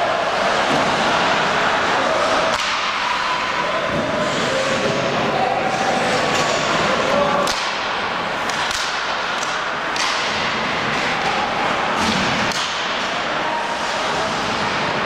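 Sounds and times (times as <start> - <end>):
hockey sticks clacking on puck: 2.1 - 5.2, 6.0 - 15.0
steady rink hiss: 4.0 - 7.2.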